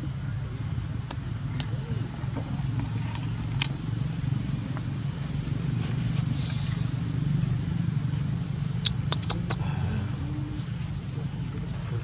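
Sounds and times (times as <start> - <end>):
low motor hum: 0.0 - 12.0
sharp click: 8.8 - 9.6.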